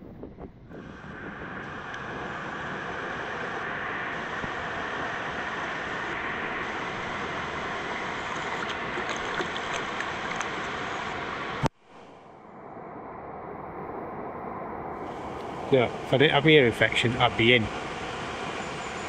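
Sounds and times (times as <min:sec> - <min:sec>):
water rushing over rocks: 0:08.2 - 0:11.2.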